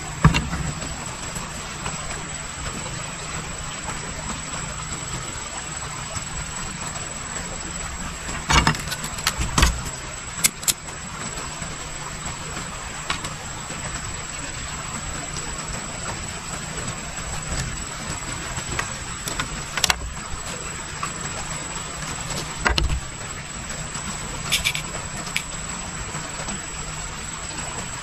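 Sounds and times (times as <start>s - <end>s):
sharp clicks: 10.4s - 10.8s, 24.5s - 25.5s.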